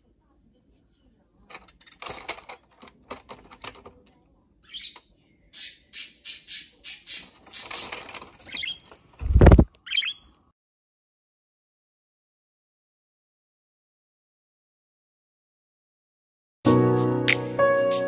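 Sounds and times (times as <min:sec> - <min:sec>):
budgerigar chirping: 0:04.6 - 0:07.8, 0:09.8 - 0:10.3.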